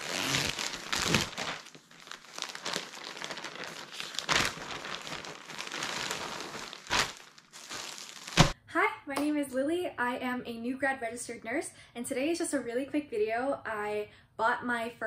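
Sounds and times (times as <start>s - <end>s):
plastic mailer bag crinkling: 0.0s - 8.6s.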